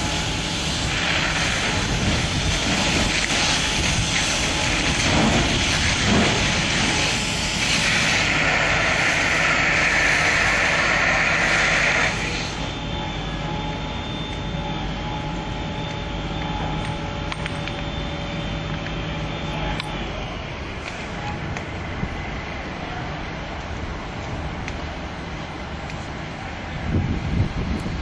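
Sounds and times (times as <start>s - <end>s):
hose nozzle rushing hiss: 0.0s - 12.7s
steady engine hum: 0.0s - 28.0s.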